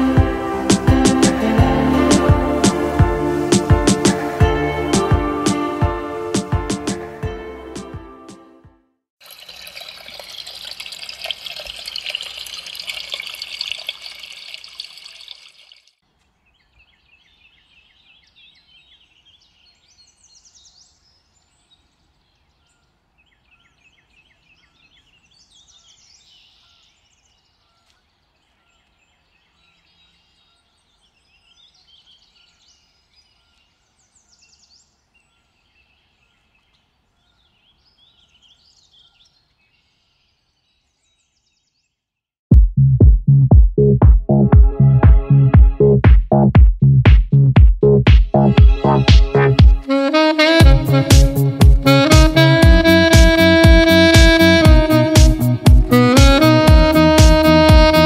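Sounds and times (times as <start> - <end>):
waterfall splashing into pool: 9.2 - 16.0
birds chirping and trilling: 16.4 - 42.0.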